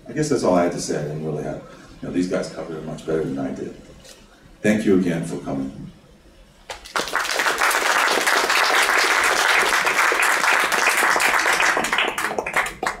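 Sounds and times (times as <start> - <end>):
small audience applauding: 6.7 - 13.0.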